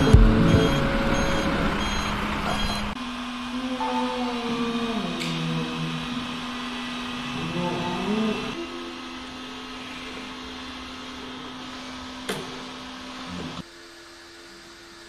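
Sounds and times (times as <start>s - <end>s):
song melody: 0.0s - 1.5s.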